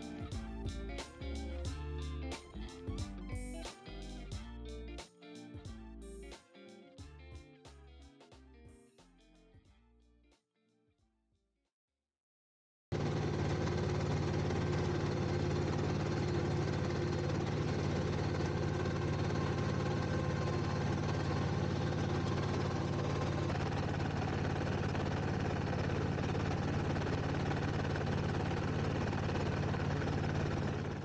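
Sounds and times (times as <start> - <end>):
tractor engine running: 12.9 - 31.0.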